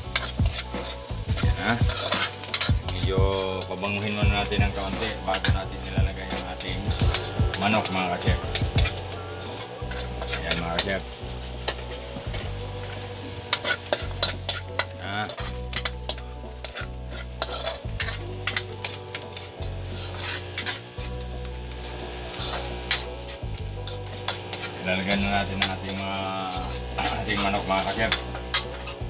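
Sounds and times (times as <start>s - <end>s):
garlic sizzling in oil: 0.0s - 29.0s
metal ladle clinking against wok: 13.5s - 20.8s.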